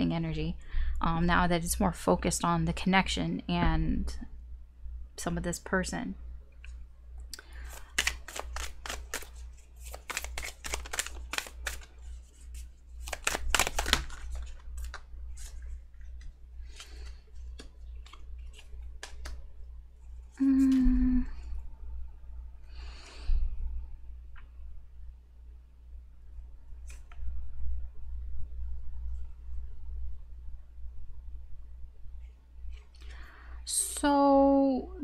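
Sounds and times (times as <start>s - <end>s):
cards shuffling: 7.4s - 19.5s, 26.8s - 27.2s
cards tapped down: 7.7s - 11.9s, 13.0s - 15.0s, 16.8s - 19.4s
person humming: 20.3s - 21.4s.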